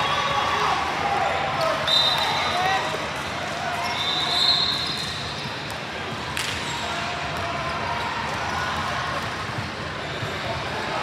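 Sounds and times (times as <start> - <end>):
din of play and crowd voices: 0.0 - 11.0
shoe squeak: 3.8 - 5.6.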